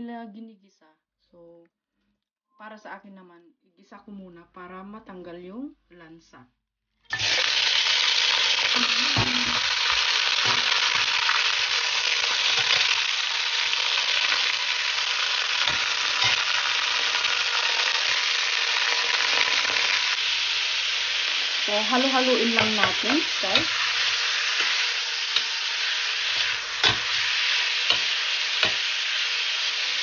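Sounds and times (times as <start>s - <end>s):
meat sizzling in hot oil: 7.1s - 30.0s.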